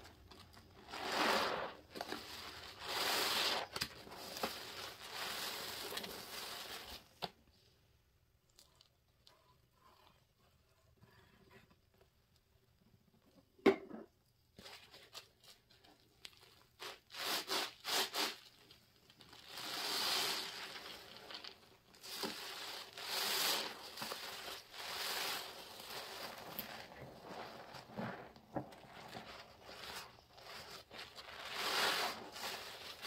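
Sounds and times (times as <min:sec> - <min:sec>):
sponge squelching with fizzing foam: 0:00.1 - 0:07.1, 0:16.8 - 0:33.0.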